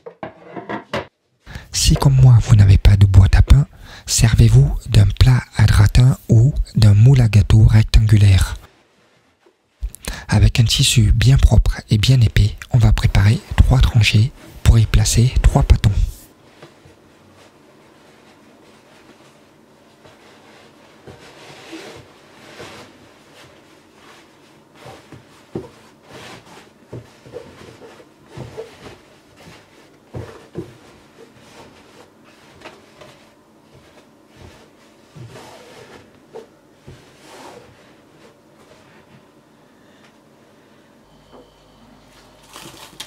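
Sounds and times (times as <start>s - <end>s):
cloth rustling: 8.6s - 9.9s, 16.3s - 39.3s.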